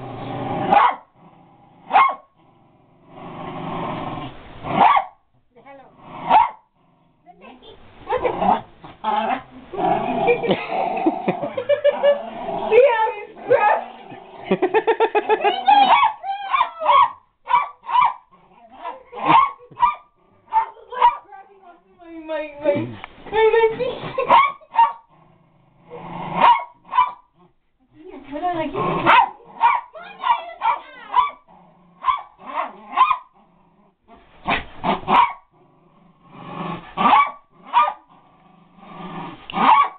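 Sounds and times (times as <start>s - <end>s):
small dog barking: 0.7s - 1.1s, 1.9s - 2.3s, 4.7s - 5.2s, 6.3s - 6.6s, 15.8s - 21.3s, 24.2s - 25.1s, 26.4s - 27.3s, 29.0s - 33.3s, 35.1s - 35.4s, 37.0s - 38.1s, 39.6s - 39.9s
small dog growling: 8.1s - 15.3s, 25.0s - 27.6s.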